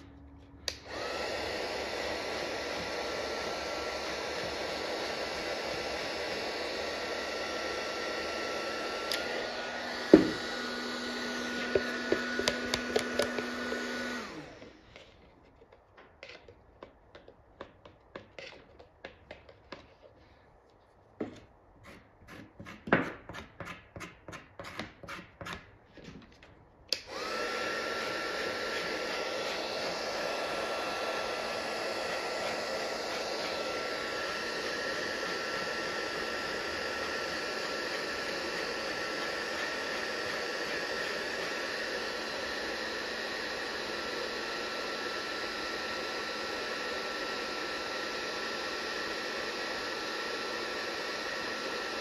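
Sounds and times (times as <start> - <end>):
heat gun blowing air: 0.0 - 15.2, 26.9 - 52.0.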